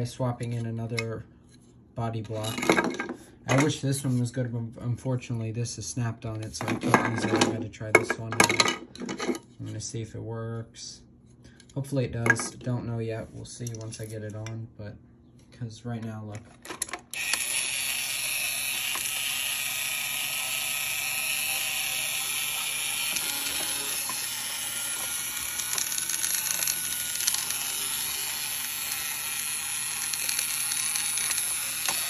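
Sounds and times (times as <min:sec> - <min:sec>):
toy robot gear motor whirring: 0:17.1 - 0:32.0.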